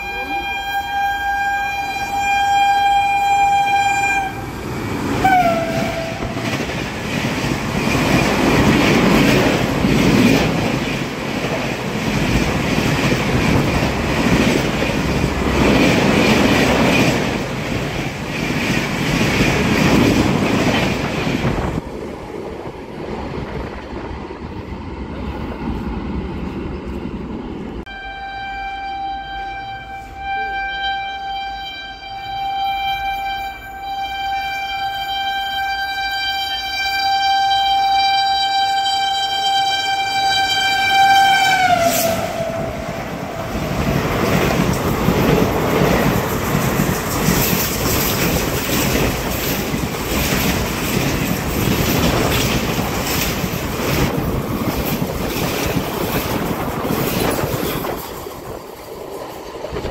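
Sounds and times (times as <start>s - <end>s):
train horn: 0.0s - 4.6s, 5.2s - 6.6s, 27.9s - 43.4s
approaching train horn: 0.0s - 6.7s, 27.8s - 44.0s
train wheels clattering: 5.0s - 21.8s, 40.5s - 59.9s.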